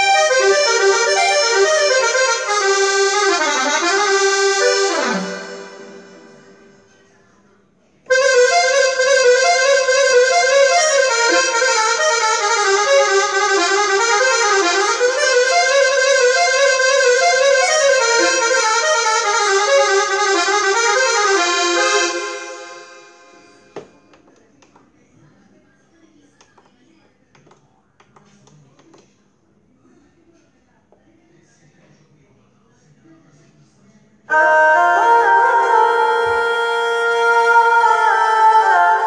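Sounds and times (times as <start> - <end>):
keytar melody: 0.0 - 6.9, 8.1 - 23.8, 34.3 - 39.0.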